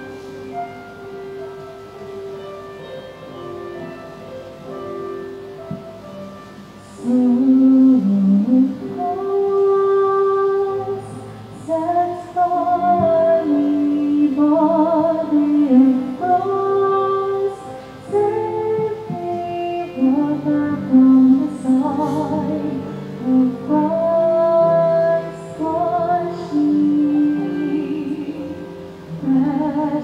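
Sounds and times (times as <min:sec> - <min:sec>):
instrumental accompaniment: 0:00.0 - 0:30.0
woman singing slow melody: 0:06.7 - 0:30.0.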